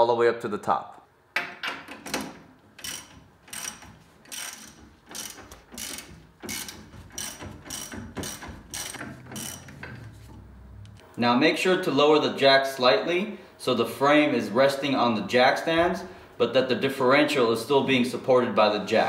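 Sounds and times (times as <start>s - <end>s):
ratchet wrench clicking: 2.8s - 9.9s.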